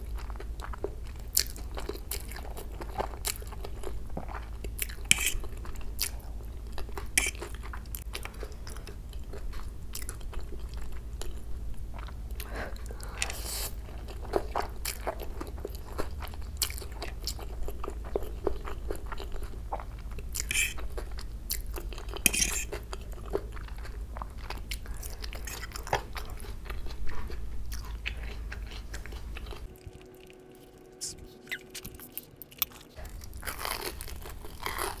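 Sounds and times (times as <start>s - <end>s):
chewing noodles: 0.0s - 35.0s.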